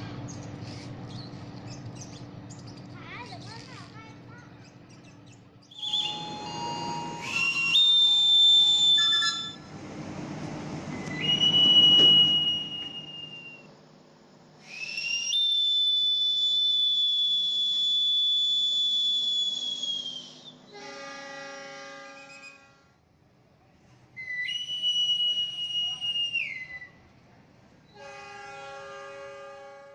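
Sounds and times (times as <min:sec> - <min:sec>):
shrill hand whistle blasts: 0:05.7 - 0:09.6, 0:11.0 - 0:13.7, 0:14.6 - 0:21.0, 0:24.2 - 0:27.0
diesel locomotive horn: 0:05.8 - 0:13.6, 0:20.6 - 0:23.1, 0:27.9 - 0:29.9.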